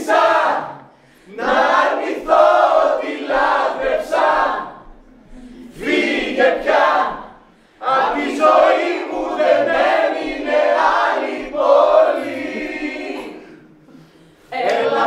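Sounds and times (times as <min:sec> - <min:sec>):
chorus of voices in unison: 0:00.0 - 0:15.0.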